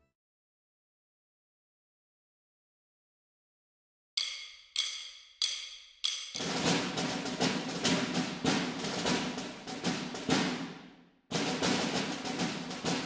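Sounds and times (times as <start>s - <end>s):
drum and percussion beat: 4.2s - 13.0s.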